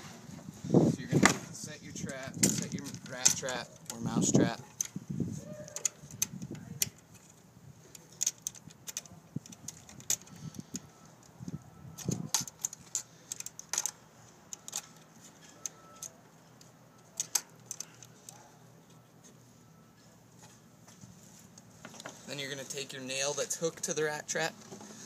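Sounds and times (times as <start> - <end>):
rat trap metallic clicks: 17.2 - 18.4.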